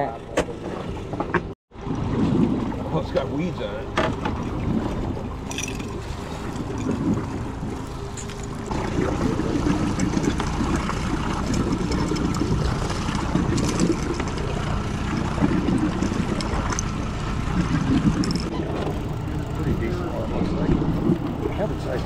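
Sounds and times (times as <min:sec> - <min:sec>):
outboard motor running: 0:00.0 - 0:22.0
water washing past hull: 0:00.0 - 0:22.0
wind on microphone: 0:08.7 - 0:21.6.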